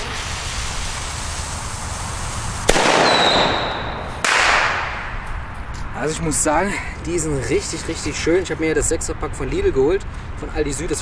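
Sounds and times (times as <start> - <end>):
fuse hissing: 0.0 - 4.2
firecracker bang: 0.0 - 5.2.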